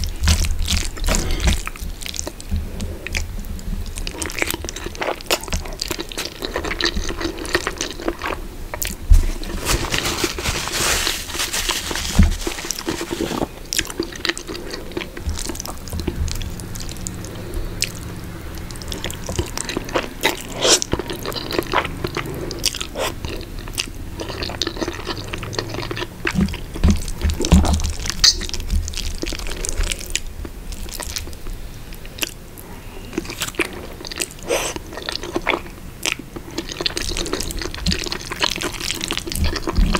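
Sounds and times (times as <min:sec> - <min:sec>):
close-miked eating sounds: 0:00.0 - 0:39.9
noodles slurped: 0:04.0 - 0:30.2, 0:33.0 - 0:39.9
wet chewing smacks: 0:12.7 - 0:31.4, 0:33.0 - 0:39.9.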